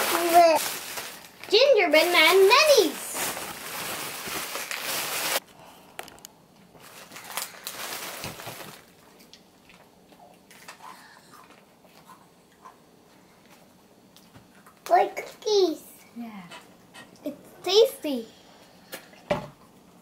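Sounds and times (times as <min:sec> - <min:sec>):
bag rustling: 0:00.0 - 0:05.4
plastic packaging crinkling: 0:00.0 - 0:05.4, 0:06.0 - 0:09.8.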